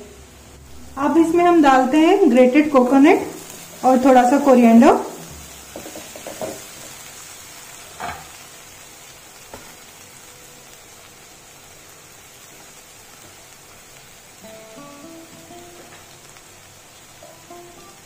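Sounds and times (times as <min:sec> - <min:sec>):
food sizzling in pan: 0:00.0 - 0:18.0
wooden spatula knocking pan: 0:05.3 - 0:06.8.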